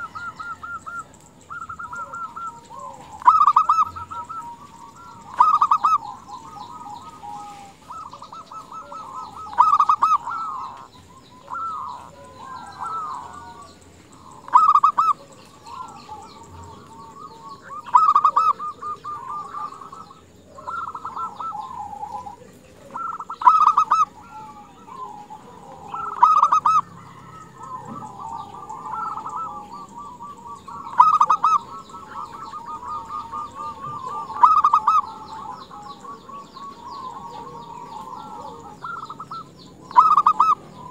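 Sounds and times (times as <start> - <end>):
dove cooing: 0.0 - 40.9.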